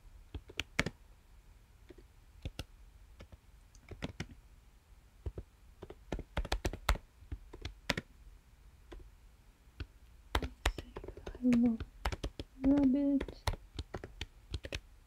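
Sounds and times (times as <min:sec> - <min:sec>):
typing on computer keyboard: 0:00.4 - 0:01.0, 0:01.9 - 0:04.4, 0:05.3 - 0:08.1, 0:10.3 - 0:14.8.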